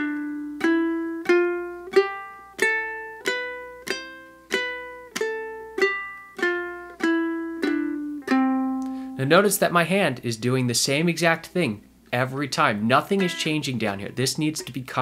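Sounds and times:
ukulele single notes: 0.0 - 9.2, 13.2 - 15.0.

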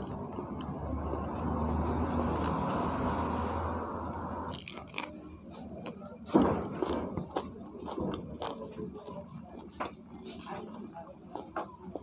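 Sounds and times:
close-up chewing: 0.0 - 3.4, 4.3 - 12.0
crisp crunches and clicks: 4.4 - 6.2.

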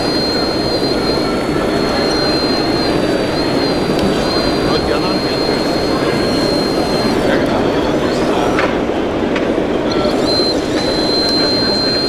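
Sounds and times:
din of a busy hall: 0.0 - 12.0
high pump whine: 0.0 - 12.0.

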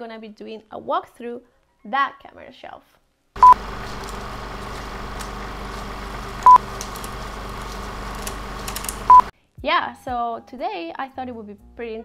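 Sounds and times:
short beeps: 3.4 - 3.7, 6.4 - 6.6, 9.1 - 9.3
electronic static hiss: 3.4 - 9.3
faint clicks: 3.4 - 9.3
low hum: 3.4 - 9.3.

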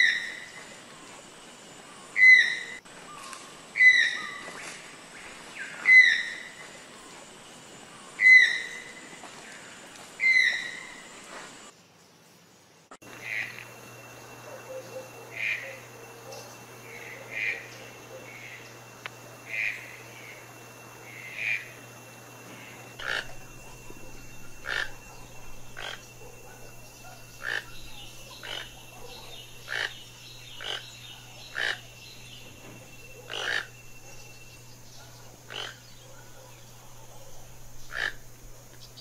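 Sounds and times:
toucan calling: 2.2 - 3.2, 8.2 - 9.0, 10.2 - 11.0, 14.4 - 18.8, 19.4 - 21.8, 22.6 - 39.0.

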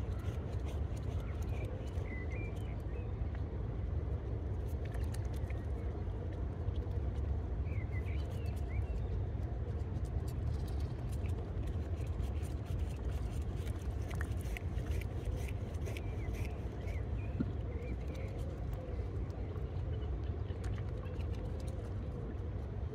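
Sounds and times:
small birds chirping: 13.1 - 20.0.

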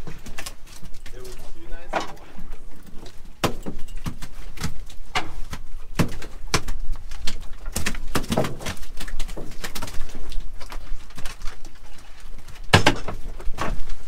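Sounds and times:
fish slapping on metal bins: 2.8 - 11.7.

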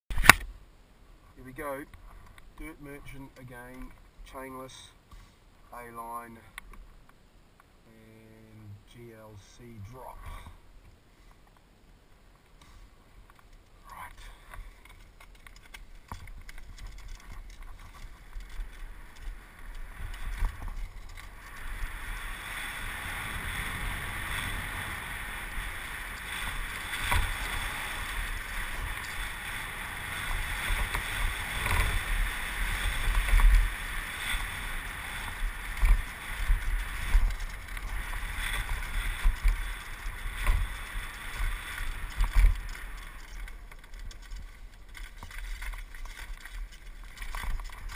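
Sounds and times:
tyres rumbling on dirt: 13.9 - 47.9
wind rushing over microphone: 16.3 - 43.7.

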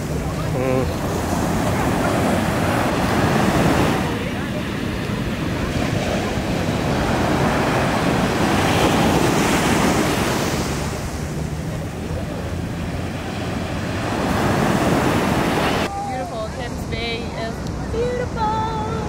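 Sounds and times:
wind noise on microphone: 0.0 - 11.5
surf breaking on beach: 0.0 - 17.2.

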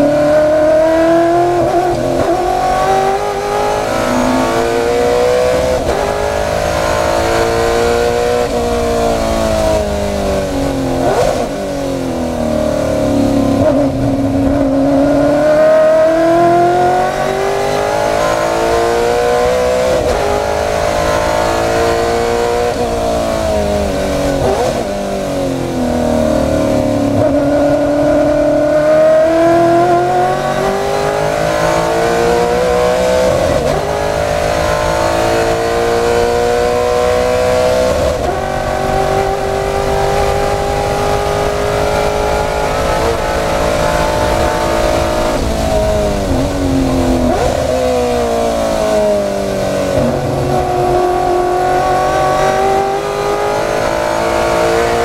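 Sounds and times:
race car engine at full throttle: 0.0 - 55.0.

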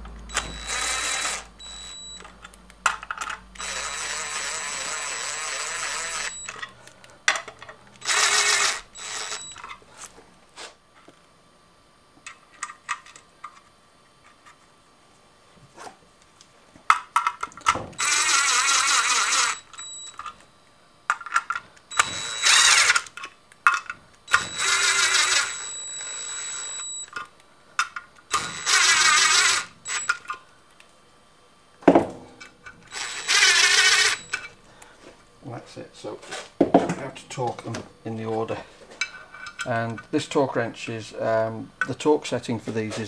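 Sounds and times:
cordless driver spinning bolts: 0.3 - 1.5, 3.0 - 6.7, 8.0 - 9.7, 18.0 - 19.7, 21.9 - 23.1, 24.3 - 26.6, 28.3 - 30.3, 32.9 - 34.5.

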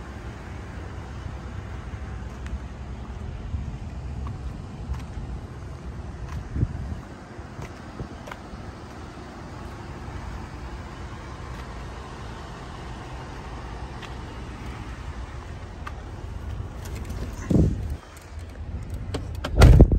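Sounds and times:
low vehicle rumble: 0.0 - 19.9
heavy thump: 19.1 - 19.9.

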